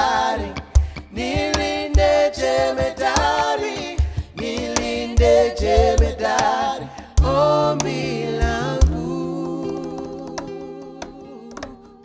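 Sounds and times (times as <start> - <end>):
men singing in harmony: 0.0 - 12.0.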